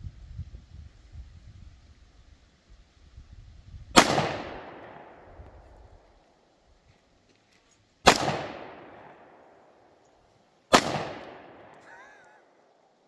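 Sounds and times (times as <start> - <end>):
pistol shots echoing: 4.0 - 5.3, 8.0 - 9.6, 10.7 - 11.8.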